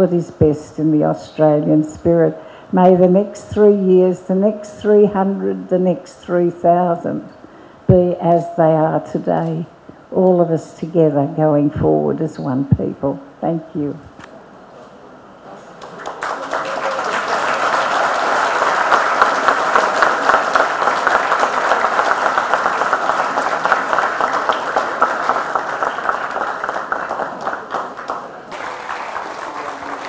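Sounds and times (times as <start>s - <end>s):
audience applauding: 15.8s - 30.0s.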